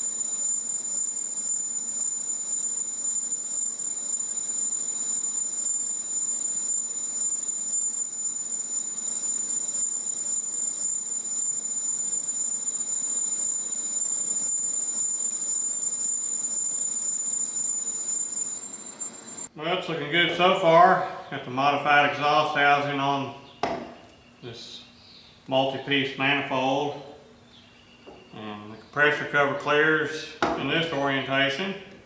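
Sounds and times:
metal lathe whining: 0.0s - 19.5s.

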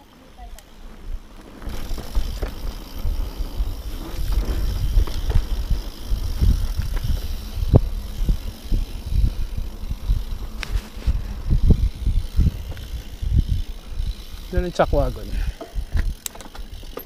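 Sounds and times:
wind and tyres on dirt: 0.0s - 17.0s
bike clattering over rocks: 15.4s - 17.0s.

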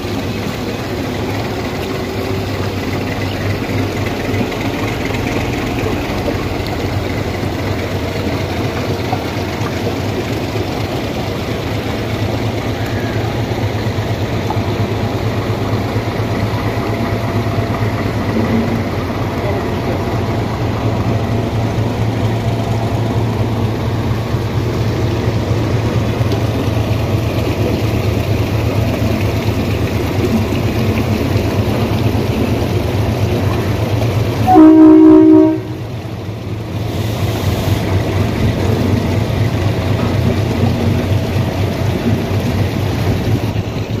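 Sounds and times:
train horn: 34.4s - 35.9s.

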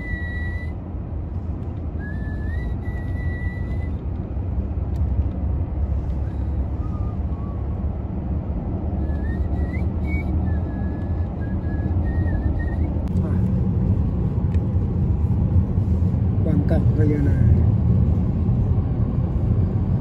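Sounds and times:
person whistling a tune: 0.0s - 0.8s, 2.0s - 4.0s, 9.0s - 13.0s
car cabin road rumble: 0.0s - 20.0s.

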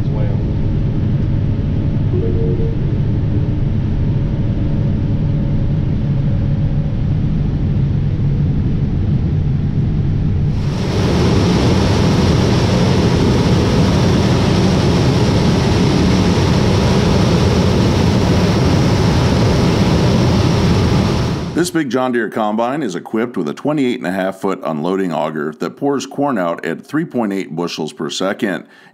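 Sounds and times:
combine engine drone: 0.0s - 21.6s.

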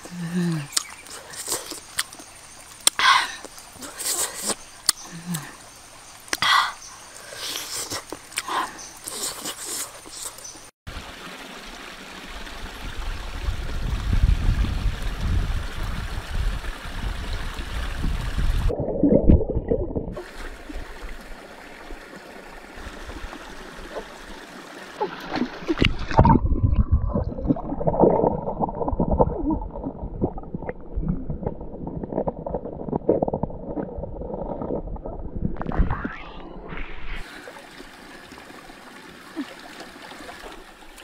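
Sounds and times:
stream running over rocks: 0.0s - 35.7s, 36.6s - 41.0s
stones knocking underwater: 18.8s - 20.2s, 25.2s - 35.8s.

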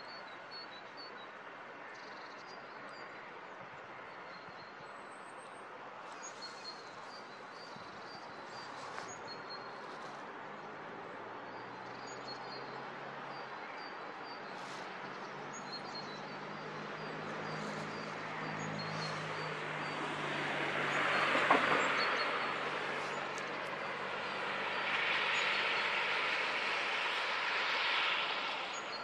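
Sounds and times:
outdoor rush: 4.9s - 29.0s
small birds chirping: 6.1s - 10.2s, 14.4s - 19.6s.

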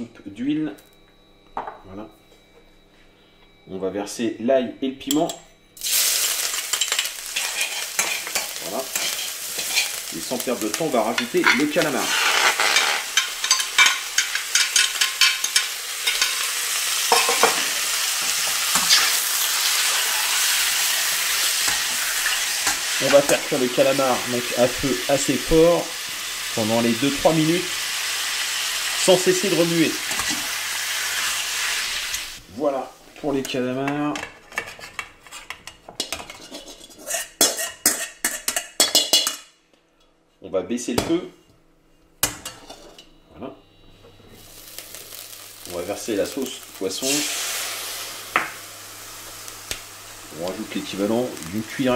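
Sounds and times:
squid sizzling in a wok: 5.8s - 33.1s, 44.3s - 51.9s
wire strainer scraping a steel wok: 7.4s - 10.0s, 11.4s - 13.7s, 36.3s - 38.4s.

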